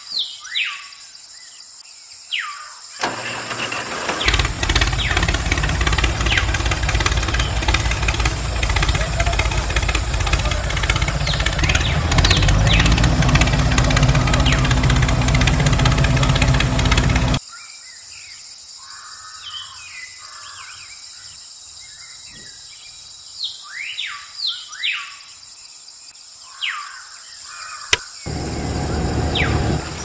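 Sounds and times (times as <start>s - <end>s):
birds chirping: 4.1s - 17.4s, 28.3s - 30.0s.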